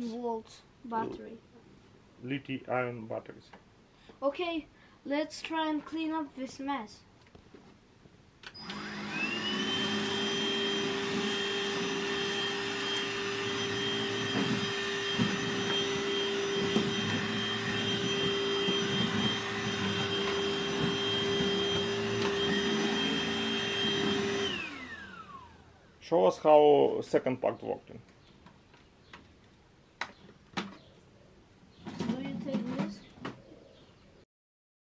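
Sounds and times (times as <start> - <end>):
vacuum cleaner motor whine: 8.5 - 25.8
vacuum sucking up grains: 8.6 - 25.4.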